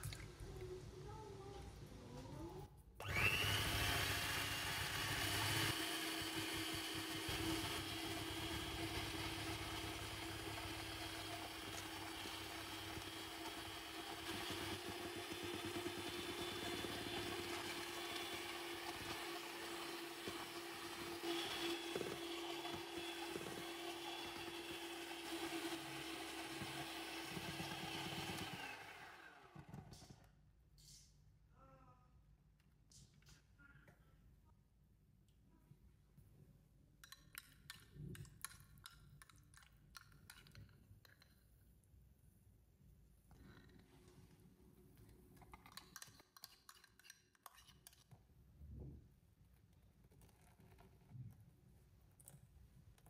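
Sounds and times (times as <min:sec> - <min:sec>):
electric hand mixer whining: 0:03.0 - 0:29.8.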